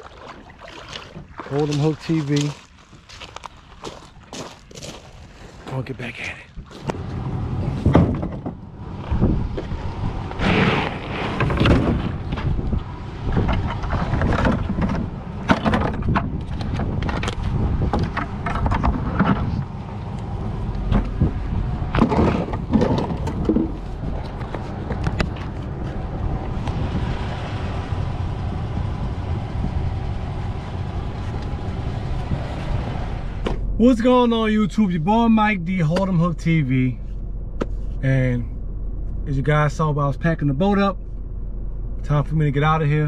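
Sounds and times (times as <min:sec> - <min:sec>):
gear knocking in truck bed: 0:20.9 - 0:25.6.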